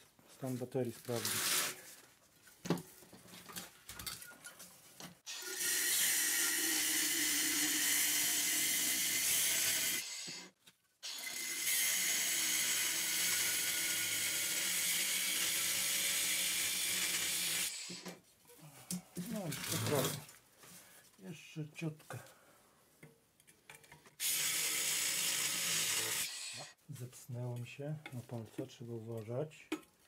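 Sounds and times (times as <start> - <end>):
angle grinder cutting metal: 5.3 - 18.1, 24.2 - 26.8.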